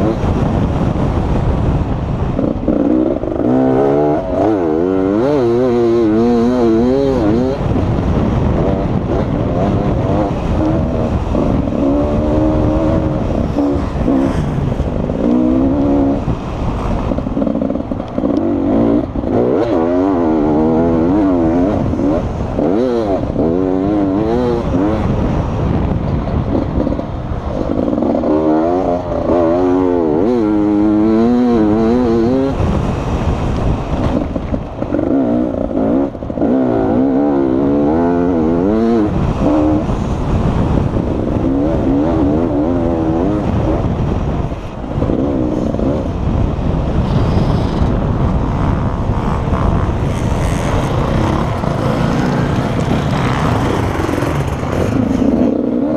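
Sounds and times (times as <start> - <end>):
dirt bike engine revving: 0.0 - 55.9
wind rush on microphone: 0.0 - 55.9.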